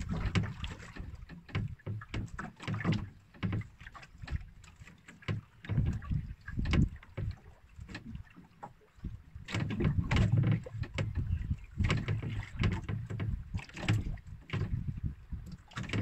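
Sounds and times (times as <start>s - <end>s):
water slapping against boat hull: 0.0s - 16.0s.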